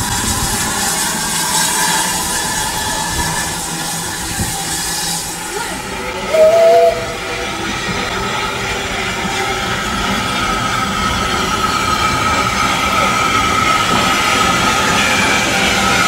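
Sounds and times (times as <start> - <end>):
steam locomotive rumbling: 0.0 - 16.0
high squeal: 1.6 - 8.0.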